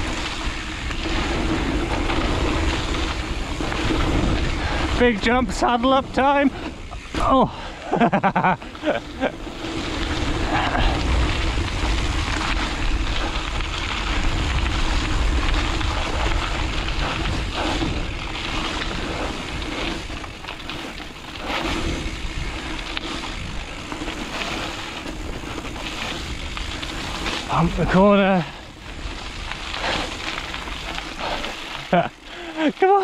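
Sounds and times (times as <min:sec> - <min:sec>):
bike knocks and rattles: 0:00.0 - 0:05.0
wind rushing over microphone: 0:00.0 - 0:32.3
tyres rumbling on dirt trail: 0:00.0 - 0:33.0.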